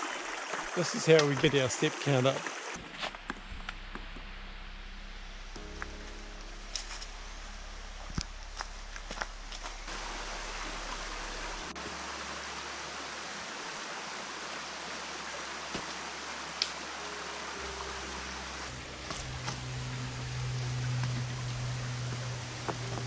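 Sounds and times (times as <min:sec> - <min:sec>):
river flowing over stones: 0:00.0 - 0:02.8, 0:09.9 - 0:23.0.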